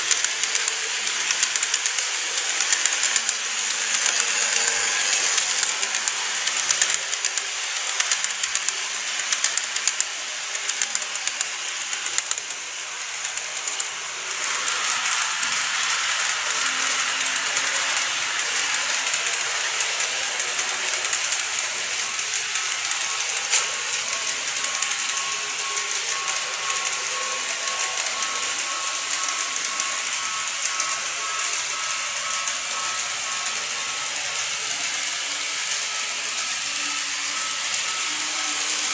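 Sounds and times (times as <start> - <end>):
small electric motor whirring: 0.0 - 38.9
wheel clicks on model rails: 0.0 - 38.9.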